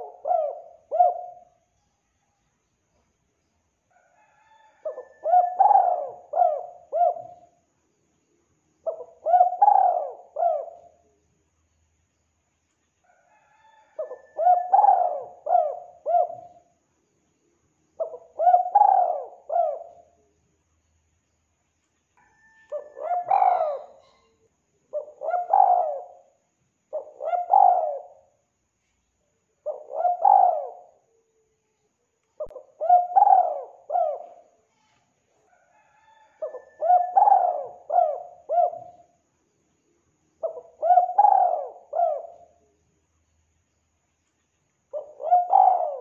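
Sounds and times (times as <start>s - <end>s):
dove cooing: 0.0s - 1.7s, 4.4s - 7.6s, 8.8s - 11.1s, 13.6s - 16.7s, 18.0s - 20.3s, 22.4s - 28.4s, 29.6s - 31.3s, 32.4s - 34.6s, 35.8s - 39.2s, 40.4s - 42.7s, 44.9s - 46.0s.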